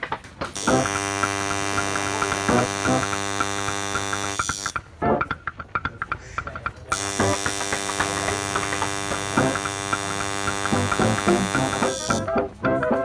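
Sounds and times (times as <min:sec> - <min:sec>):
tattoo machine buzzing: 0:00.6 - 0:04.8, 0:06.9 - 0:12.3.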